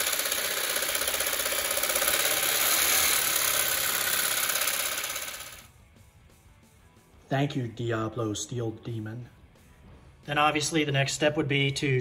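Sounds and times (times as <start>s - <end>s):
reciprocating saw cutting metal: 0.0s - 5.7s.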